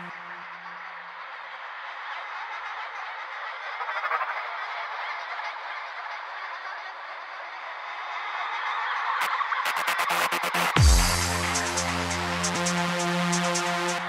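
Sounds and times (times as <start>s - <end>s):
noisy synth build-up: 9.6s - 14.0s.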